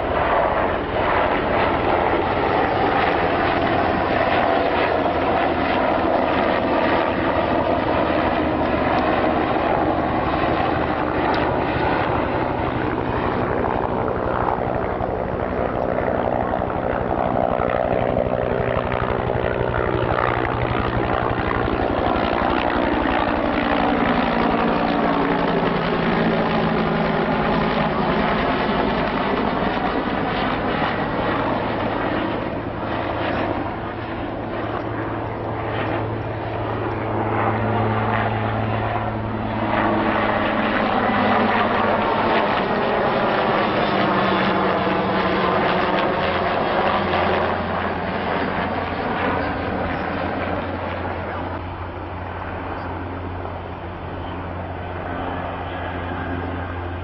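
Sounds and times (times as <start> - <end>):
helicopters flying overhead: 0.0 - 57.0.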